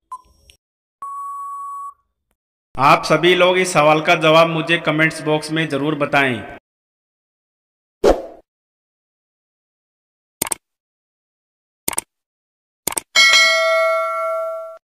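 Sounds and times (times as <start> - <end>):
bright bell ding: 13.2 - 14.8.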